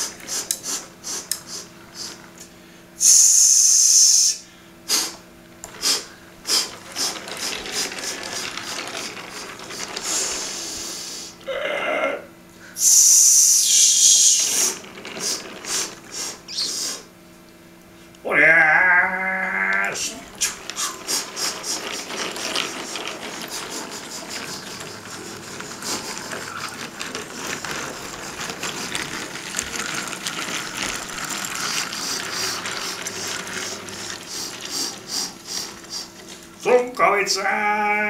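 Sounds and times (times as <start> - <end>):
model train wheels clicking on rails: 0.0 - 4.3, 4.9 - 11.4, 12.8 - 17.1, 19.7 - 37.6
loud hiss: 3.0 - 5.2, 12.8 - 14.7.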